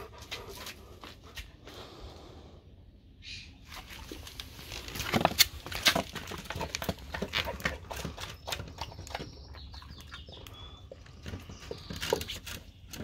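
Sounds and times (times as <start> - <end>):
dog chewing and licking: 5.1 - 12.7.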